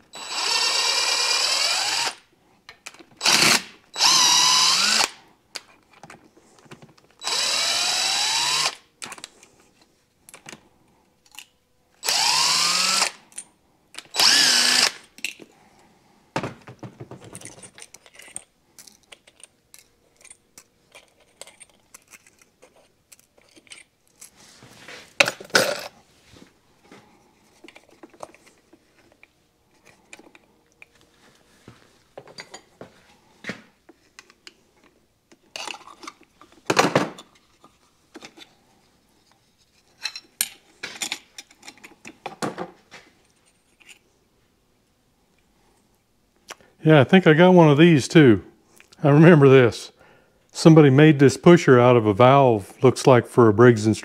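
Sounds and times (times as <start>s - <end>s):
power drill whining: 0.1s - 2.2s, 3.2s - 5.2s, 7.2s - 8.8s, 12.0s - 13.2s, 14.1s - 15.1s.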